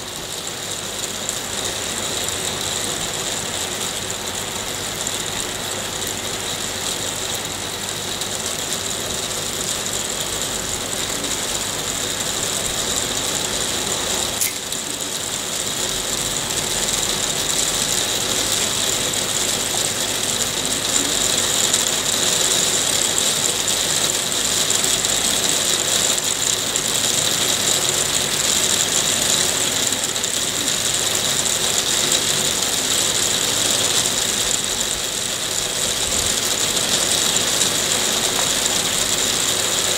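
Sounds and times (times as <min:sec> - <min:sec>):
sharp click: 0:14.4 - 0:14.7.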